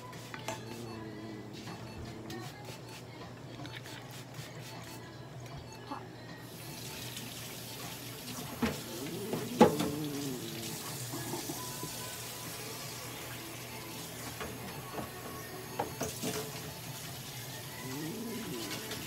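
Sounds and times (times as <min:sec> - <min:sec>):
running water hissing: 0:06.4 - 0:19.0.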